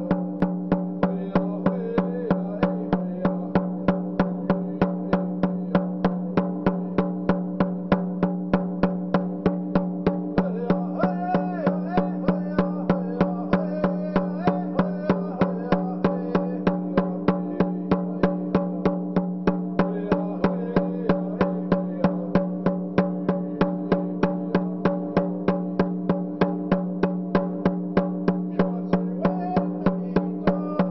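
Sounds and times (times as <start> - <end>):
man singing: 0.0 - 7.1, 10.3 - 25.3, 28.4 - 30.9
hand drum struck with a beater: 0.0 - 30.9.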